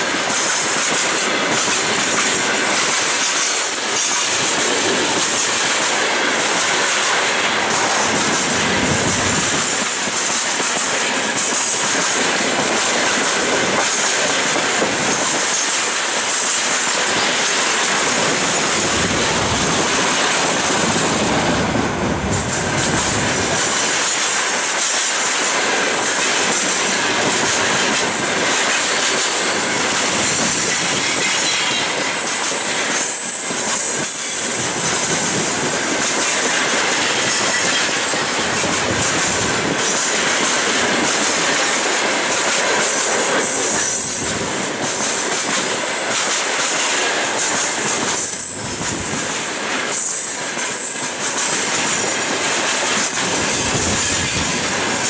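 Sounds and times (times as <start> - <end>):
train wheels rumbling on rail: 0.0 - 55.0
wheel squeals: 29.6 - 34.4, 47.2 - 50.9.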